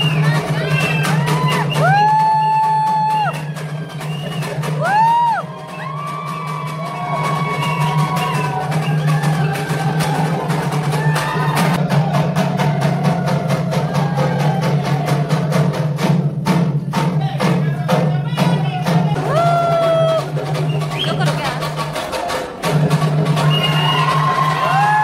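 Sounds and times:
barrel drums beating: 0.0s - 25.0s.

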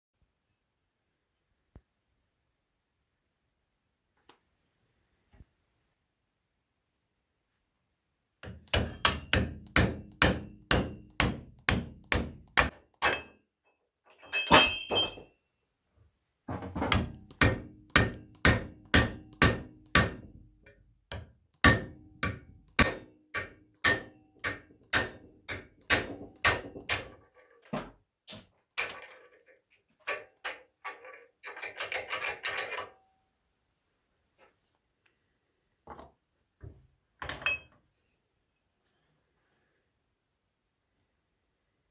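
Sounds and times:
hammer striking steel punch: 8.4s - 13.4s, 16.9s - 20.3s, 21.1s - 27.1s.

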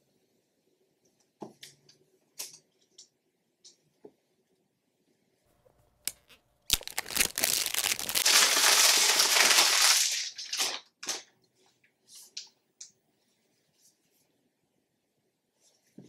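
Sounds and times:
plastic wrapping crinkling: 5.6s - 11.2s.

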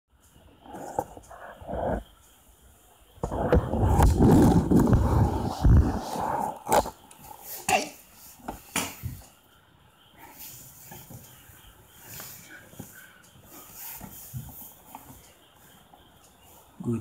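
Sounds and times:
rubbing on phone microphone: 0.4s - 2.3s, 3.2s - 7.5s.

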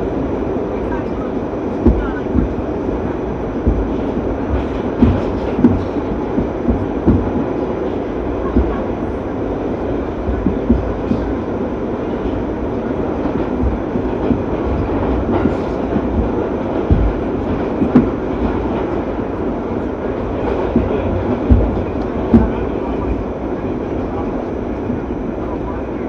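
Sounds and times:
train wheels rumbling on rail: 0.0s - 26.0s
low thumps from wheels: 1.7s - 9.0s, 10.1s - 11.4s, 12.3s - 23.2s.

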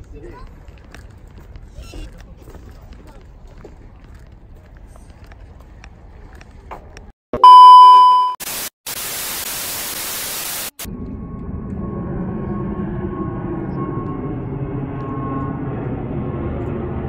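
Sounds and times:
test-tone beep: 7.4s - 8.4s
tv static hiss: 8.4s - 10.9s
jet airliner flying overhead: 10.9s - 17.0s.

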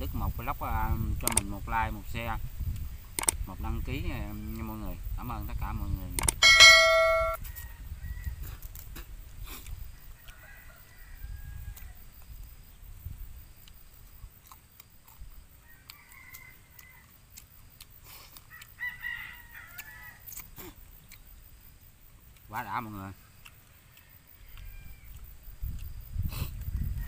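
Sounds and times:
rooster crowing: 6.4s - 8.4s, 10.2s - 12.0s, 15.6s - 17.2s, 18.5s - 20.3s, 23.8s - 25.1s.

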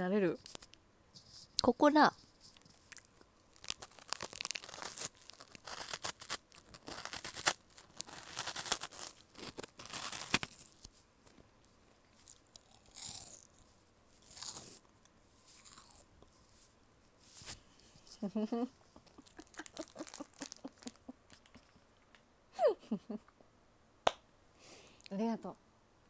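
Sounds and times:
crunching and chewing snack: 2.5s - 11.4s, 12.1s - 16.7s, 19.0s - 21.8s.

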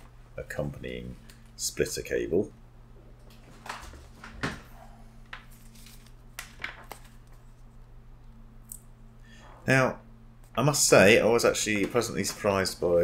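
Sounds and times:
low steady hum: 0.0s - 13.0s
headset cable handling noise: 5.2s - 7.7s.

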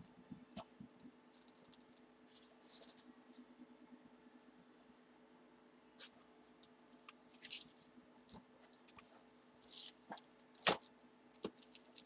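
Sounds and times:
rustling and crinkling packaging: 6.0s - 12.0s.

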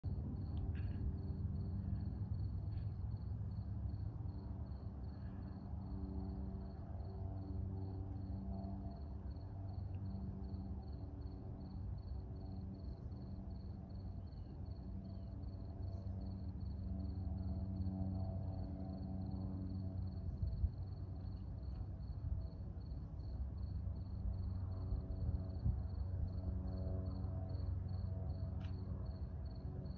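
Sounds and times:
low droning hum: 0.0s - 29.9s
cricket chirping: 0.3s - 29.9s
wind rumbling on microphone: 20.1s - 27.0s.

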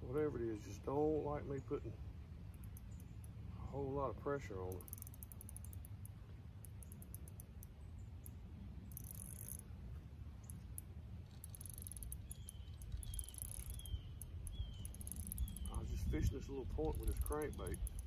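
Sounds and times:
fishing reel drag clicking: 4.6s - 9.6s, 10.4s - 18.0s.

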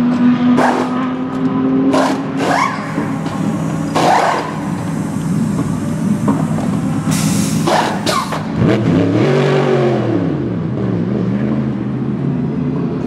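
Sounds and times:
engine hum: 0.0s - 13.0s
pneumatic wheel gun bursts: 1.9s - 8.6s.

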